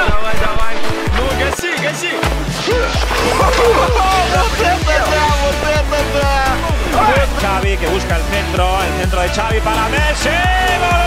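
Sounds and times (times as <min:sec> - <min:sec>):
deep drum beat: 0:02.2 - 0:11.0
gliding melody: 0:02.7 - 0:08.5.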